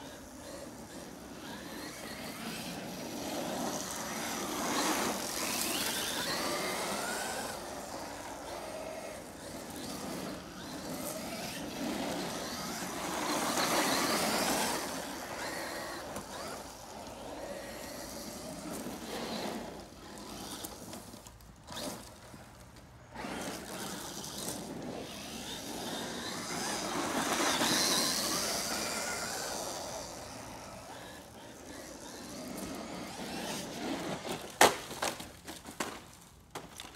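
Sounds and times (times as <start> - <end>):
electric motor whining: 23.2 - 33.8.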